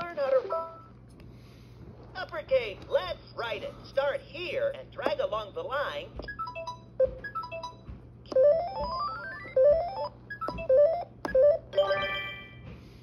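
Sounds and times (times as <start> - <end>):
toy electronic beeping notes: 6.3 - 12.6.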